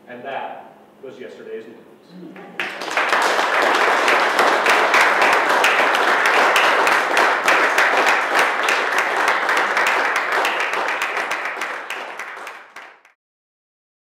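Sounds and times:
audience applauding: 2.6 - 13.2.

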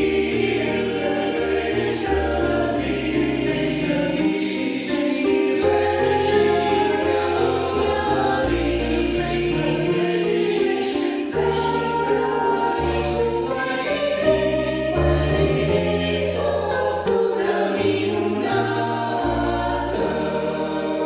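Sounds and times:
mixed choir singing a hymn: 0.0 - 21.0.

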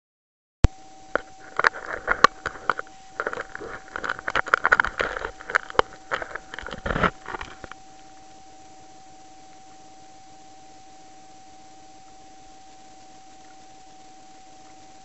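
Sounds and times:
faint electronic whine: 0.6 - 15.0
hands handling camera mount: 1.2 - 7.8.

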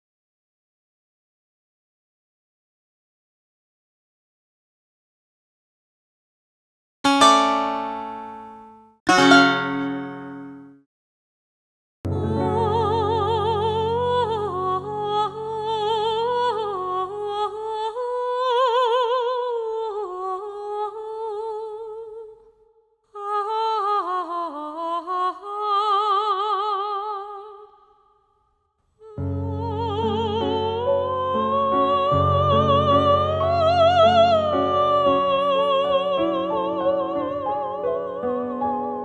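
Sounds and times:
woman singing with vibrato: 12.1 - 22.4, 23.2 - 27.8, 29.0 - 39.0.

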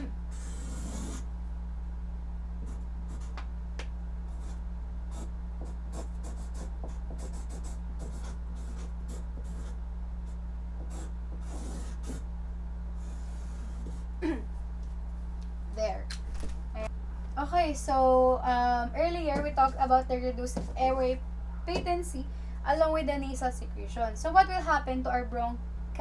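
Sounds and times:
steady low hum: 0.0 - 26.0
marker scratching on paper: 0.3 - 1.2, 2.6 - 3.4, 4.3 - 9.8, 10.8 - 12.2, 13.0 - 14.1.

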